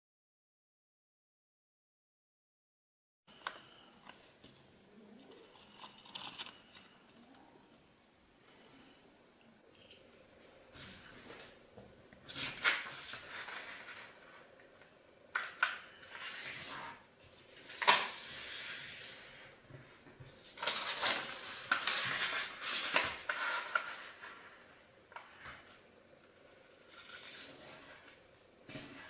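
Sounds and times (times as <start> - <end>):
paper crinkling and rustling: 12.2 - 14.5, 15.3 - 19.4, 20.3 - 24.6.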